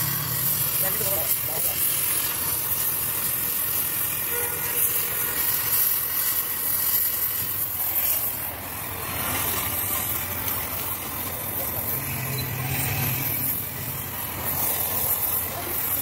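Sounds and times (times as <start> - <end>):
welding torch flame hissing: 0.0 - 16.0.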